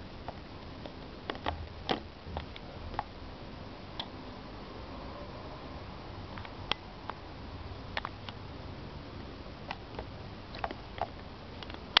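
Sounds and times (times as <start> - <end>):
light clicks and taps: 9.7 - 12.0.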